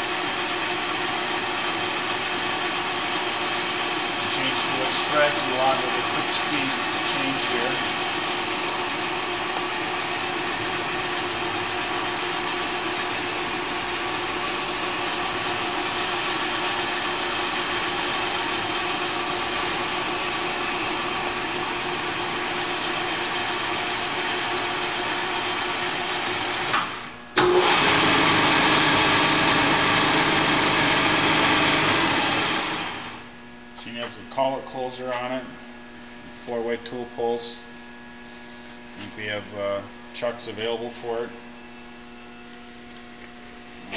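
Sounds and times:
lathe machine whine: 0.0s - 33.7s.

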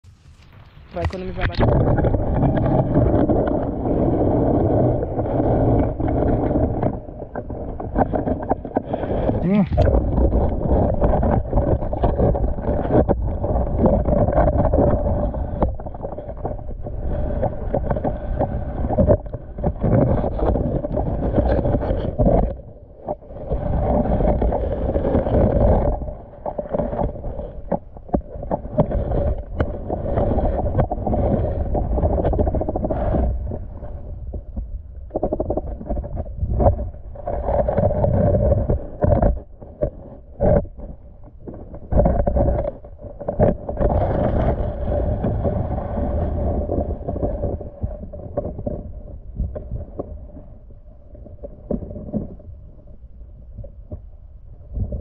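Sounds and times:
muffled underwater noise: 0.2s - 22.6s.

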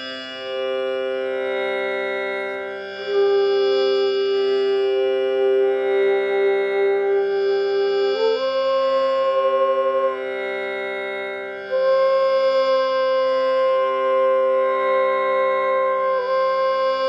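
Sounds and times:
bamboo flute long notes: 0.0s - 17.0s
tanpura drone: 0.0s - 17.0s.

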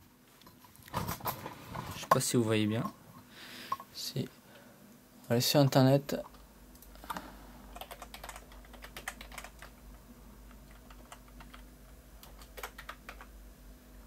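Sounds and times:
typing on computer keyboard: 7.7s - 9.8s, 10.7s - 13.3s.

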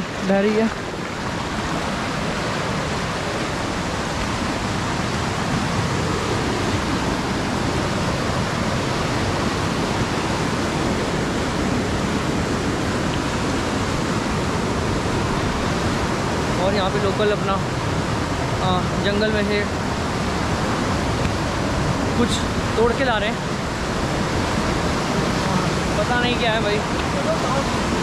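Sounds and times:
river rushing over rocks: 0.0s - 28.0s.

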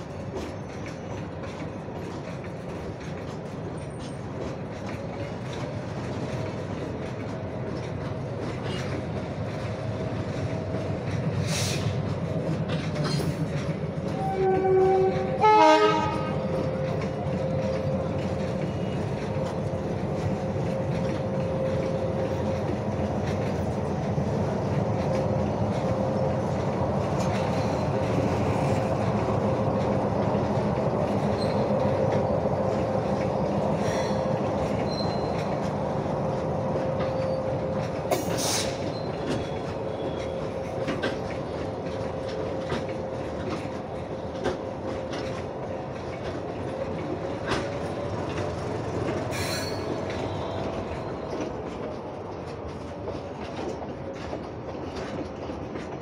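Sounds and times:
train wheels on rails: 0.0s - 56.0s
train horn blasts: 14.1s - 16.6s.

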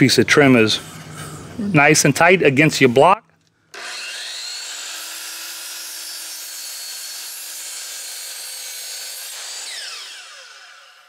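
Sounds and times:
miter saw whining: 3.7s - 11.0s.

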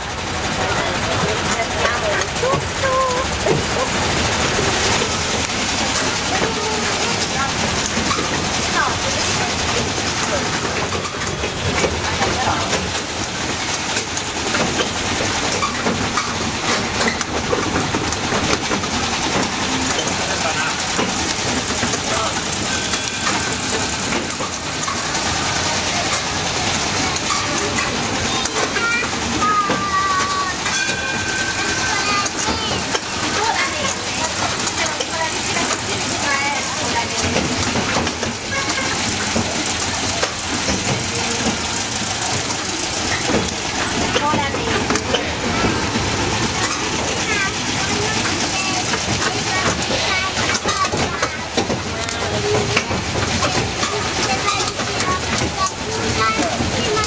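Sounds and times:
road train rattling over paving: 0.0s - 57.0s.

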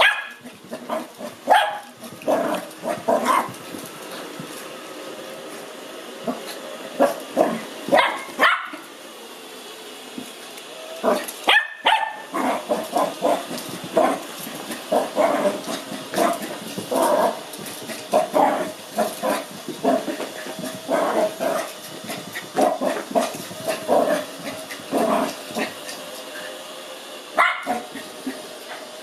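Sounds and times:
puppy barking and grumbling: 0.0s - 3.6s, 11.0s - 20.2s, 27.4s - 28.0s
robot vacuum whirring: 0.0s - 29.0s.

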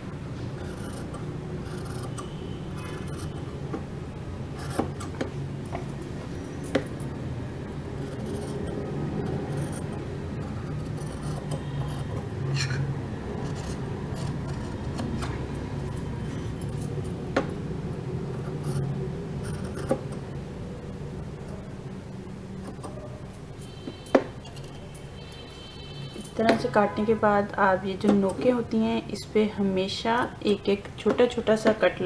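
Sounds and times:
low steady hum: 0.0s - 32.0s
scissors rasping through cloth: 0.5s - 3.5s, 8.0s - 17.2s, 18.3s - 20.2s.

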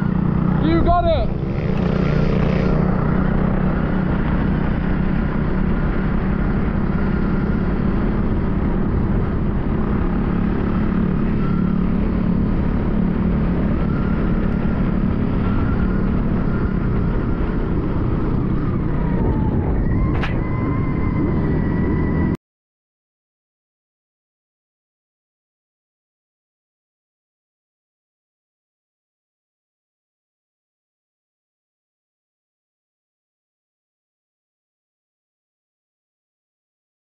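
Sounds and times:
wind buffeting: 0.0s - 22.4s.

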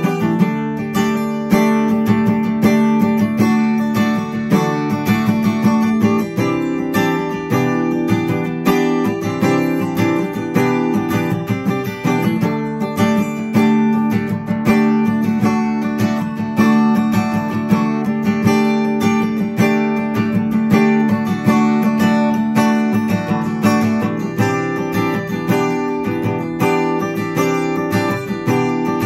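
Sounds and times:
acoustic guitar strummed chords: 0.0s - 29.0s.

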